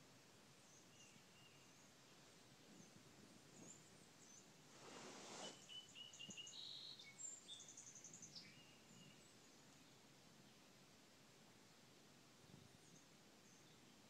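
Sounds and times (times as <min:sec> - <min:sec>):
songbird chirps: 0:00.0 - 0:14.0
brief rush of noise: 0:04.7 - 0:05.6.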